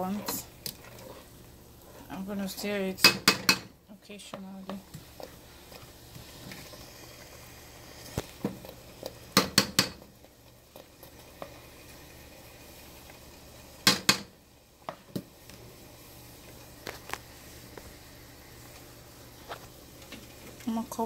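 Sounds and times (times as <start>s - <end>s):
seeds frying in oil: 0.0s - 21.0s
spoon knocking and scraping pan: 0.1s - 6.8s, 8.1s - 10.1s, 13.8s - 15.3s.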